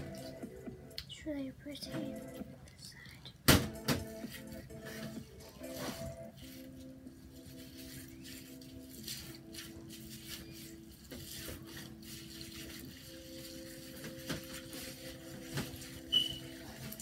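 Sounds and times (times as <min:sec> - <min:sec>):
plastic crinkling: 0:04.3 - 0:17.0
high-pitched chirp: 0:16.1 - 0:16.5.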